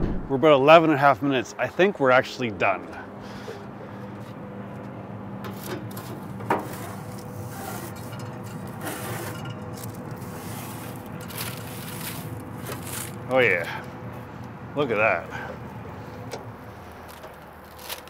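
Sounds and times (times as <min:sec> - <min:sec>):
steady hum: 0:00.0 - 0:17.7
metal peel scraping oven floor: 0:05.4 - 0:13.4.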